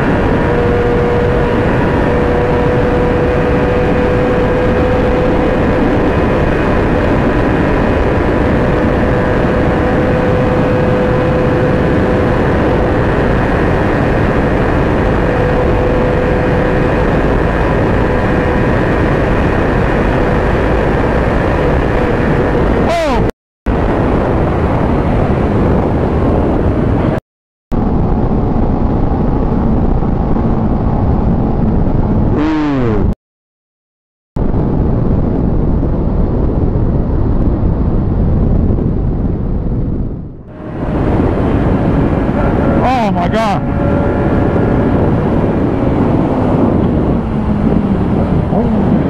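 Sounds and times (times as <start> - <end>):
motorcycle engine steady note: 0.0 - 23.1, 40.5 - 49.0
wind rush: 0.0 - 33.2, 34.4 - 49.0.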